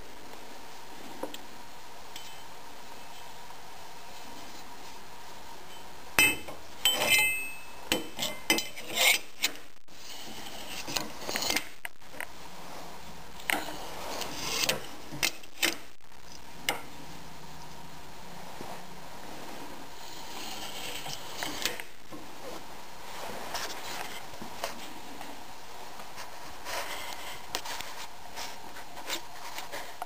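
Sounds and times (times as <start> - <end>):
metal clinks and knocks: 6.2 - 8.8
metal arm scraping: 6.9 - 11.8, 13.6 - 15.8.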